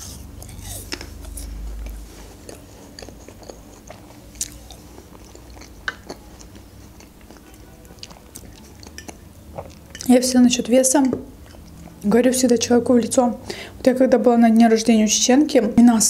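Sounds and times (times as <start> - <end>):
person chewing food: 0.0 - 10.1, 11.3 - 12.0.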